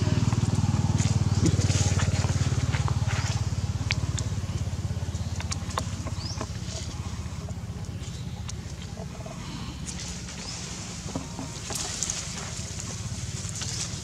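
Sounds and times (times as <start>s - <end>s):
engine running with low throb: 0.0s - 14.0s
light crackles and rustles: 9.8s - 14.0s.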